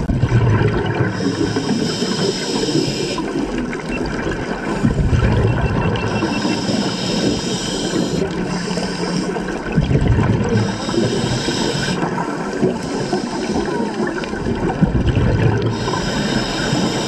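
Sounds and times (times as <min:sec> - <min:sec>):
exhaust bubbles rushing: 0:00.0 - 0:01.5, 0:03.6 - 0:06.9, 0:09.4 - 0:16.3
scuba regulator inhale hiss: 0:01.2 - 0:03.4, 0:06.1 - 0:09.5, 0:10.6 - 0:13.8, 0:15.7 - 0:17.0.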